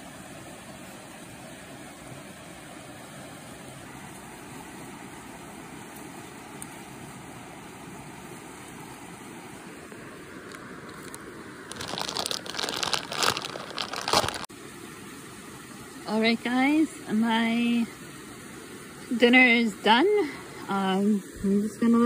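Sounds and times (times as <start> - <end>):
creek and waterfall rushing: 0.0 - 22.0.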